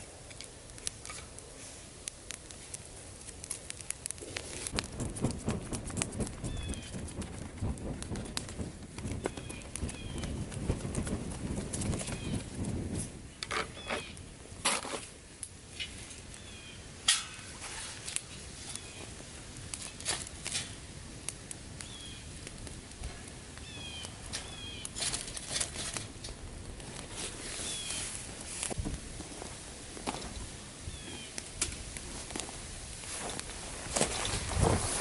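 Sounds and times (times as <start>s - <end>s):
campfire crackling and popping: 0.0s - 35.0s
hand fan rush of air: 4.2s - 13.3s, 31.7s - 35.0s
grill grate knocking: 4.7s - 12.0s.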